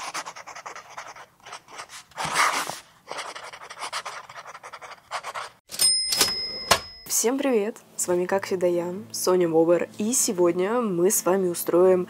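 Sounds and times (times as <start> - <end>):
pen scribbling: 0.0 - 5.6.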